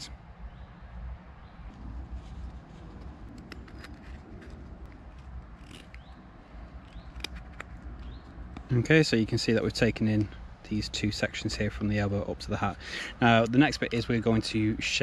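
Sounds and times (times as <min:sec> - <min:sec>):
low steady rumble: 0:00.0 - 0:15.0
knife scraping wood: 0:02.1 - 0:06.2.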